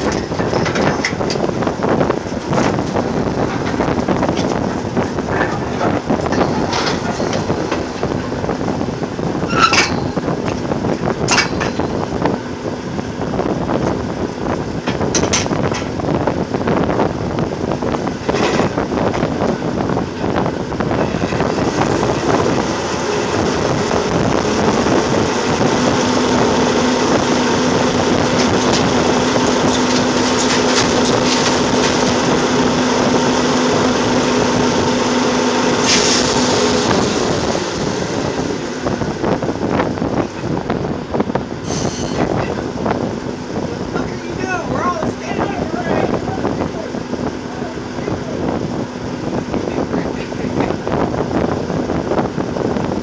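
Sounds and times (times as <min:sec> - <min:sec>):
drilling rig machinery running: 0:00.0 - 0:53.0
droning engine: 0:00.0 - 0:53.0
sharp metal clanks: 0:09.5 - 0:10.3, 0:11.2 - 0:12.0.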